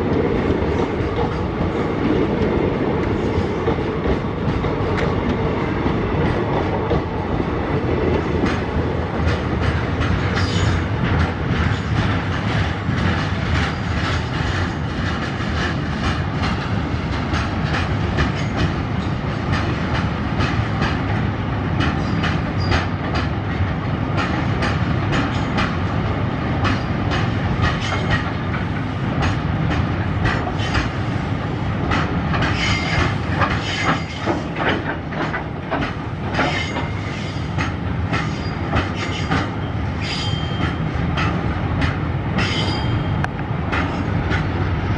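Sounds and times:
wheels rumbling on rail: 0.0s - 44.9s
clicks of wheels on rail joints: 8.0s - 26.0s, 26.6s - 31.2s, 31.8s - 44.6s.

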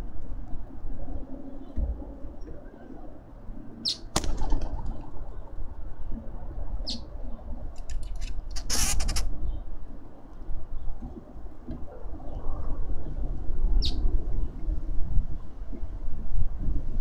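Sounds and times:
wind rumbling on microphone: 0.0s - 17.0s
bird wings flapping: 4.1s - 5.0s.

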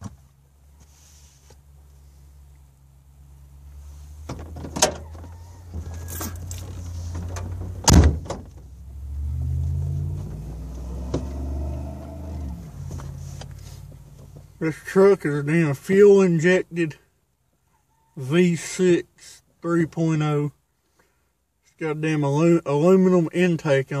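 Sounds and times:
sharp knocks in cab: 7.8s - 8.6s
truck engine revving: 8.7s - 14.0s.

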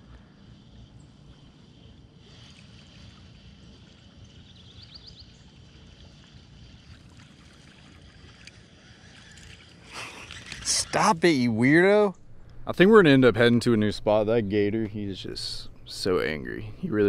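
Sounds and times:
low unsteady rumble: 11.4s - 17.0s.

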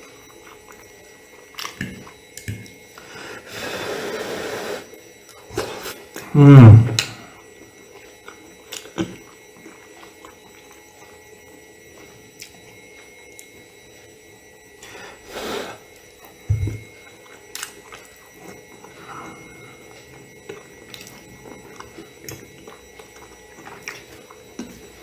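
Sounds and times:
man humming: 5.6s - 7.2s
breathy chewing: 14.8s - 25.0s.

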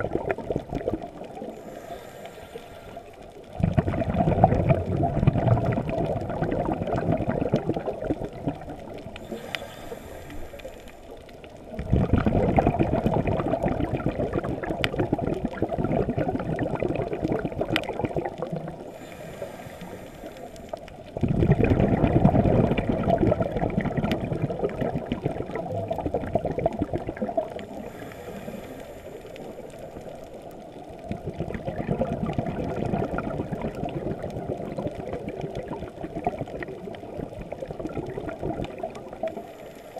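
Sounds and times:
bubbling underwater exhalations: 0.0s - 1.8s, 3.4s - 9.5s, 11.7s - 19.8s, 21.2s - 29.2s, 31.0s - 39.5s
hissing inhalations: 1.4s - 3.1s, 9.2s - 11.1s, 18.9s - 20.8s, 27.7s - 30.0s.

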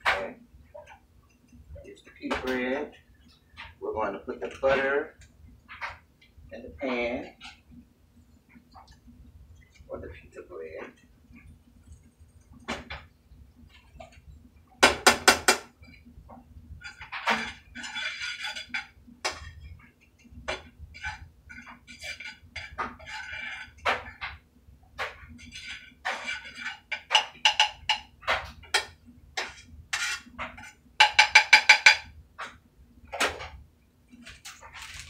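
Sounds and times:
utensil scraping a frying pan: 16.8s - 24.4s, 25.0s - 32.1s.

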